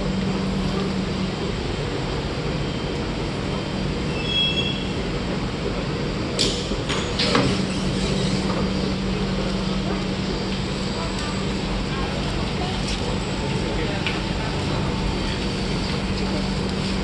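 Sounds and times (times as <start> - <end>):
train rumbling into station: 0.0 - 17.0
high brake squeal: 4.1 - 5.0.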